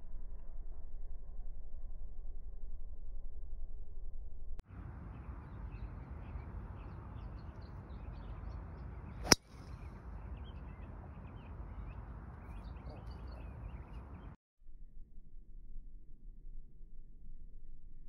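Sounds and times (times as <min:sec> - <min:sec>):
birds chirping: 0:05.1 - 0:14.4
golf club striking ball: 0:09.2 - 0:09.5.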